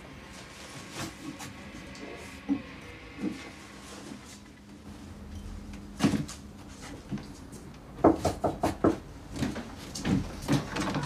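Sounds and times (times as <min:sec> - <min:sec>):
clunks of things handled: 0:05.4 - 0:07.5
knocking on a door: 0:08.0 - 0:09.0.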